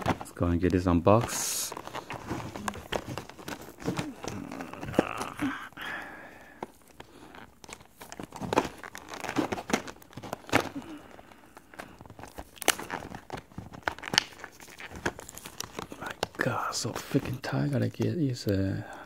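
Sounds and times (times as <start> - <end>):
plastic packaging crinkling: 0.0 - 19.0.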